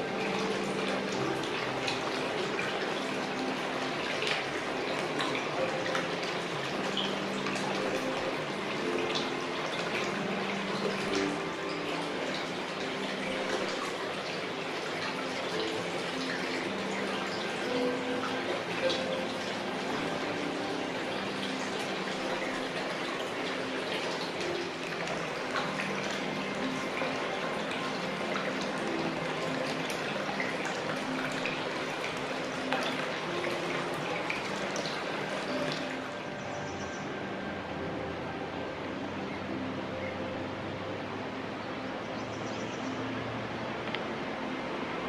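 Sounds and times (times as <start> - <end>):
water pouring into a bath: 0.0 - 37.0.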